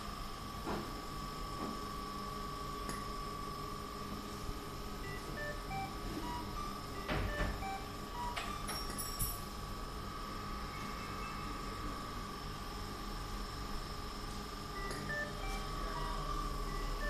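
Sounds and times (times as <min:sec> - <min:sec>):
steady high-pitched tone: 0:05.0 - 0:09.0, 0:10.3 - 0:12.4, 0:14.8 - 0:17.0.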